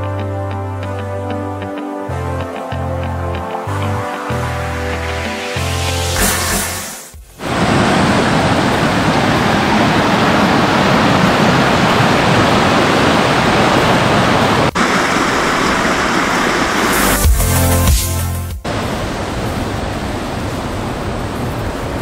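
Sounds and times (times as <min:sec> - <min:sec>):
music: 0:00.0 - 0:07.4, 0:16.9 - 0:18.7
creek water rushing over rocks: 0:07.4 - 0:17.2.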